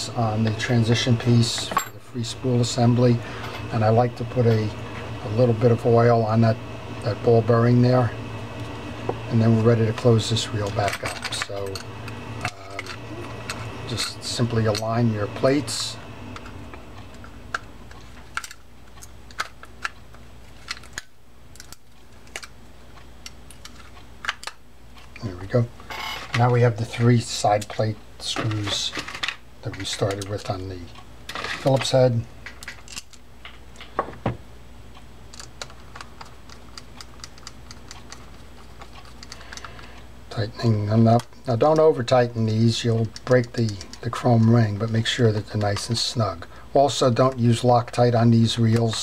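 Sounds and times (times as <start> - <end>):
low hum: 0.0 - 18.6.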